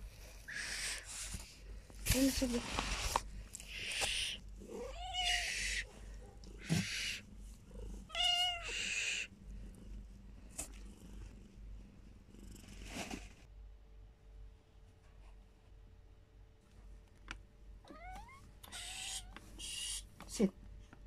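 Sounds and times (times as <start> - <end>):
cat hissing: 0.4 - 1.5, 2.9 - 9.8, 18.0 - 20.2
cat meowing: 3.8 - 5.9, 8.1 - 9.3, 17.9 - 19.9.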